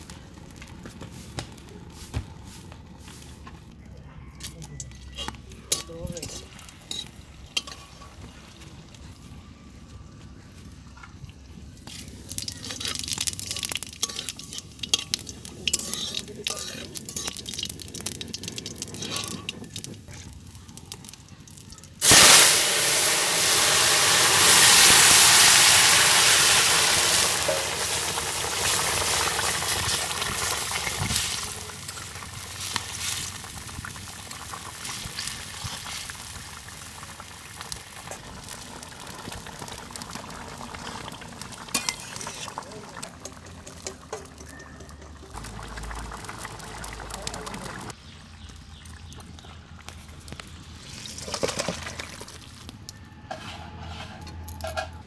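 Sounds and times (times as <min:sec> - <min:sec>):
chillies popping in hot oil: 0:04.4 - 0:09.1, 0:10.8 - 0:53.0
loud hiss into steady sizzle: 0:11.7 - 0:43.8.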